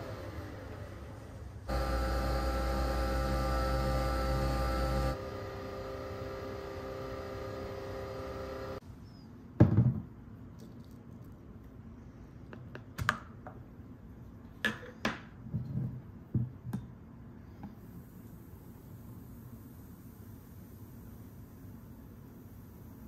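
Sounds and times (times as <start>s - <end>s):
coffee machine whirring: 0.0s - 8.8s.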